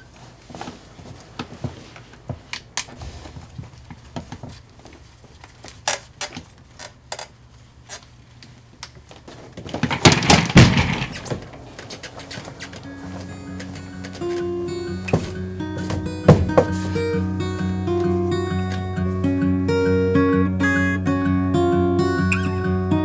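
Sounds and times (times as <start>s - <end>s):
office chair creaking and clicking: 0.1s - 17.2s
knocks and rattling: 9.4s - 17.1s.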